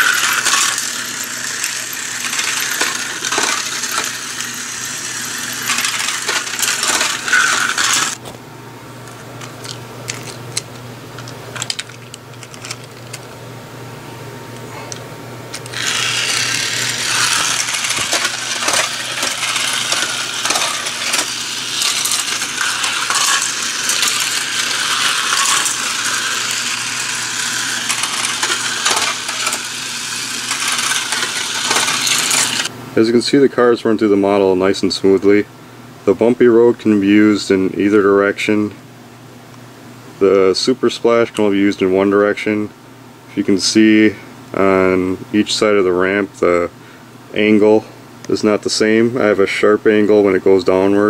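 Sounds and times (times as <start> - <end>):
toy car wheels rattling on plastic track: 0.0 - 8.2, 15.7 - 32.7.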